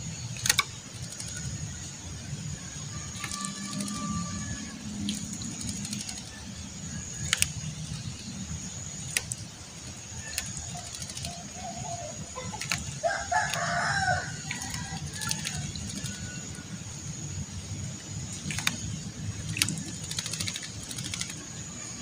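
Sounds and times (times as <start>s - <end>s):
bird splashing in water: 2.8s - 8.3s, 8.9s - 16.6s, 18.3s - 21.6s
rooster crowing: 2.9s - 5.0s, 13.0s - 16.5s.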